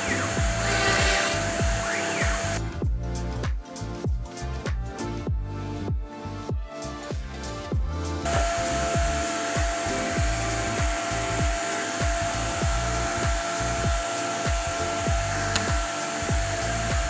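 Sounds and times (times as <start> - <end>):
motor whine and hiss: 0.0 - 2.7, 8.3 - 17.0
electronic music with bass kicks: 0.0 - 17.0.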